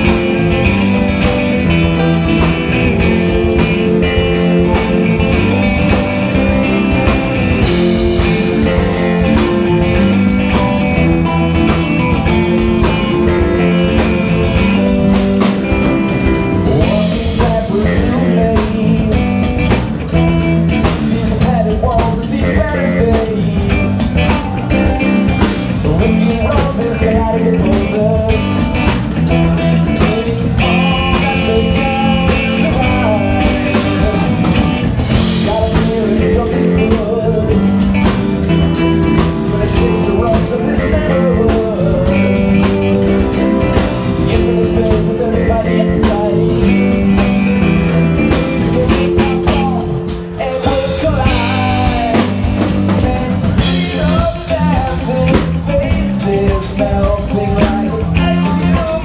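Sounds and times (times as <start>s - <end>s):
live rock band playing: 0.0s - 59.0s
person singing into a microphone: 16.6s - 19.7s, 20.8s - 38.1s, 38.7s - 59.0s.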